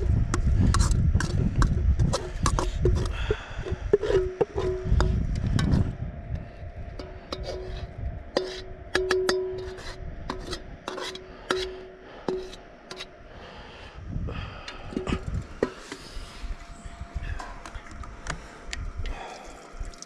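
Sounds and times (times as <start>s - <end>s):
metal spatula scraping a wok: 7.3s - 8.8s, 9.5s - 13.1s.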